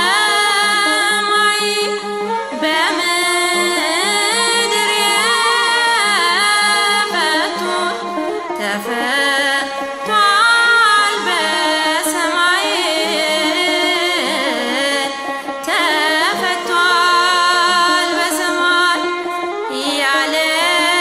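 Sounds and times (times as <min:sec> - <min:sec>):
woman singing a hymn: 0:02.6 - 0:08.0, 0:08.6 - 0:15.1, 0:15.7 - 0:19.0, 0:19.7 - 0:21.0.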